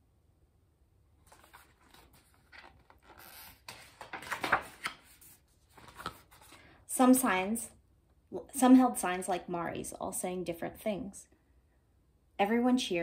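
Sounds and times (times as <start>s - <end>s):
paper pages rustling: 1.2s - 6.7s.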